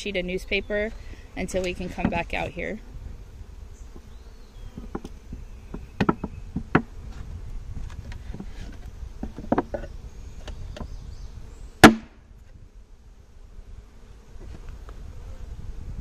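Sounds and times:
bees buzzing: 0.0 - 16.0
wooden knocks and clicks: 5.7 - 6.9, 8.1 - 9.9.

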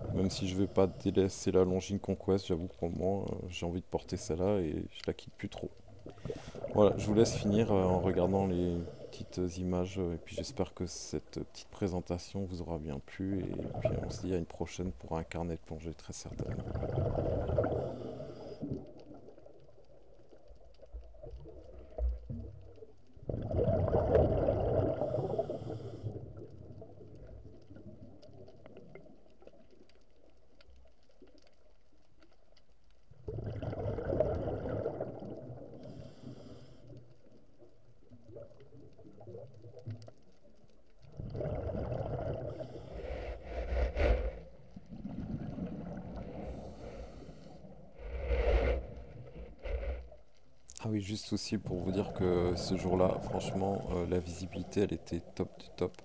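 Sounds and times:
diver exhaling bubbles: 16.4 - 18.9, 23.2 - 26.5, 33.3 - 36.0, 41.1 - 50.2
diver inhaling through regulator: 17.6 - 18.8, 25.0 - 26.2, 35.8 - 37.0, 42.4 - 44.6, 46.2 - 50.2.

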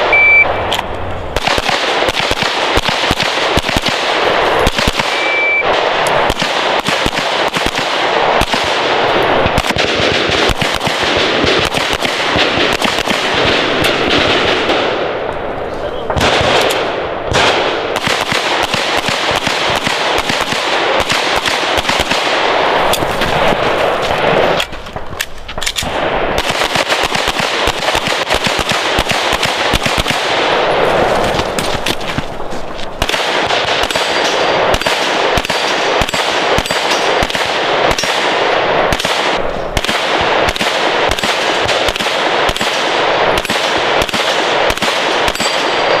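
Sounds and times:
handgun shots hitting steel targets: 33.1 - 38.3, 43.4 - 46.0.

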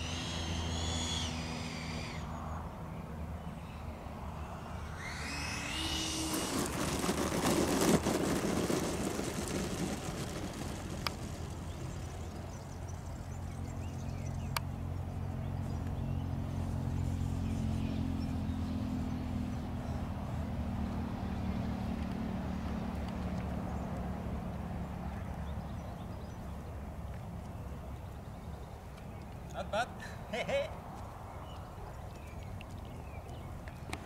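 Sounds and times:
electric ducted fans humming: 3.8 - 13.8
rough rumble of ground roll: 5.2 - 14.2.

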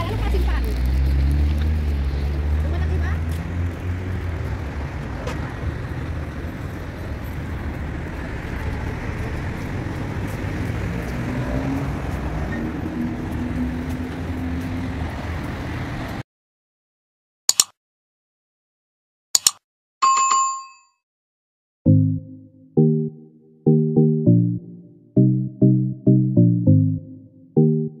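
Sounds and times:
passing cars: 0.0 - 16.2
mouse click sound effects: 17.5 - 17.7, 19.4 - 19.6.

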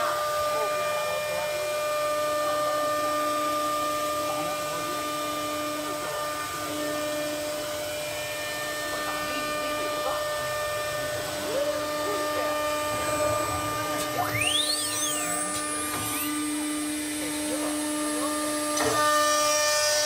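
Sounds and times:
cnc router humming: 0.0 - 20.0
high electrical whining tones: 9.1 - 20.0.

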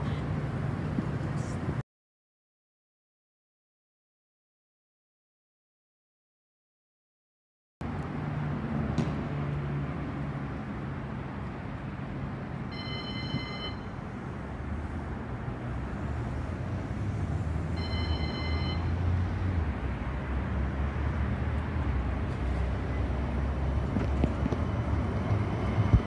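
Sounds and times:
tram rumbling: 0.0 - 1.8, 11.8 - 26.0.

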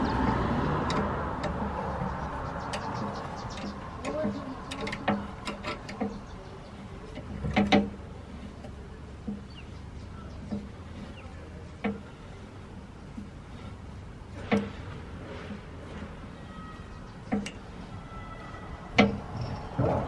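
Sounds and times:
metal clamp clicking and knocking: 2.6 - 6.3, 7.1 - 8.0.

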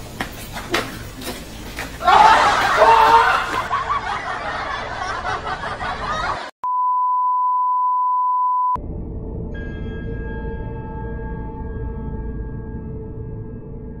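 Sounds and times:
test tone beep: 6.6 - 8.8.

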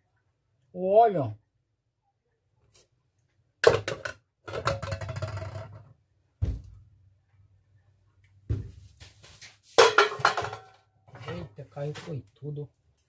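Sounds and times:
pan and can clanking: 9.8 - 10.8.

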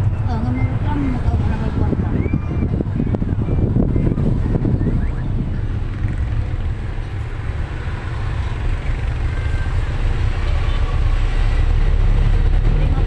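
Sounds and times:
bus engine and road noise: 0.0 - 13.0.

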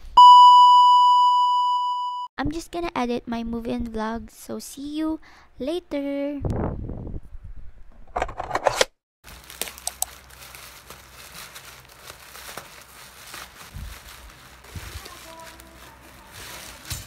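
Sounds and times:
bubble wrap crinkling: 9.2 - 17.0.

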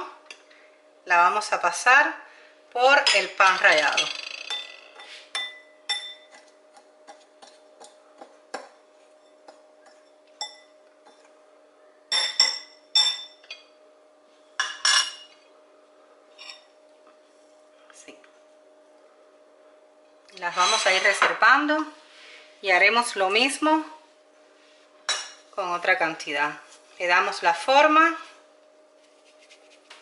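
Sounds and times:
faint steady hum: 0.0 - 30.0
cutlery clinking on bowls: 3.1 - 6.5, 9.2 - 11.3, 12.1 - 13.7, 20.5 - 21.3.

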